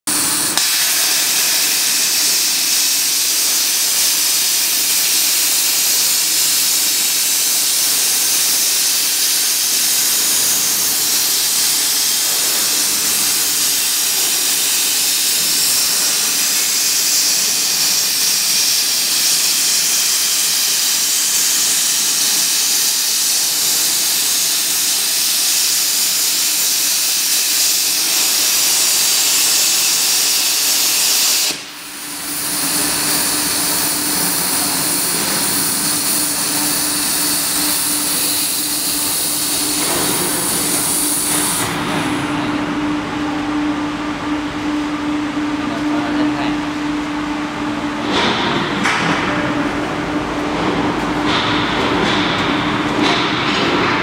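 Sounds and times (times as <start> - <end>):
plasma cutting torch hissing: 0.1 - 42.1.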